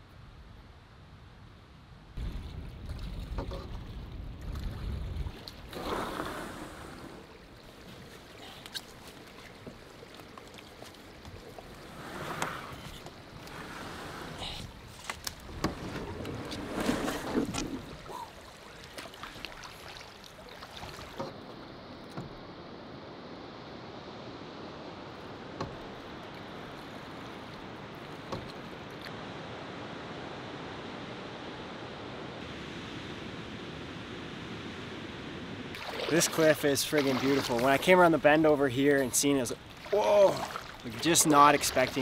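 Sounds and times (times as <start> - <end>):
wind buffeting microphone: 2.2 - 7.0
water sloshing: 2.2 - 22.4, 25.2 - 29.1, 35.7 - 42.0
paddling through brush rustling: 4.7 - 22.5, 35.8 - 42.0
canoe knocking: 9.2 - 18.0, 25.6 - 26.0.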